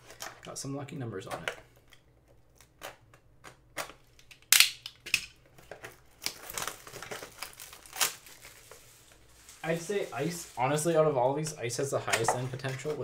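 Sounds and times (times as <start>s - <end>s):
plastic wrap crinkling: 5.5s - 13.0s.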